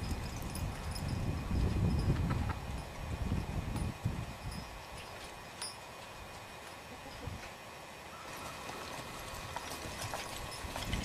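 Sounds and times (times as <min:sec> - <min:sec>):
wind rumbling on microphone: 0:00.0 - 0:05.4, 0:09.2 - 0:11.0.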